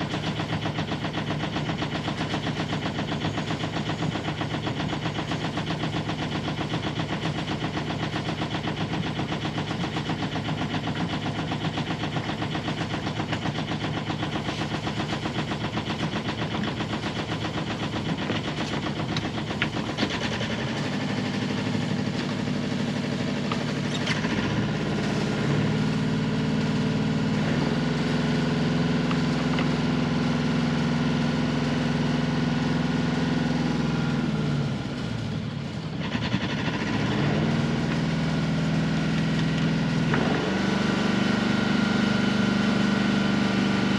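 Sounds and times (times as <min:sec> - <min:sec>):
boat engine chugging: 0:00.0 - 0:33.4.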